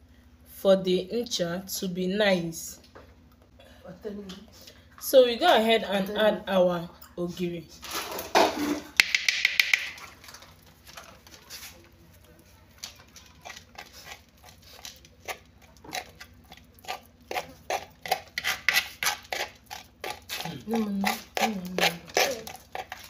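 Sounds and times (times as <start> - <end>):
hand mashing paste in a pot: 12.7 - 23.0.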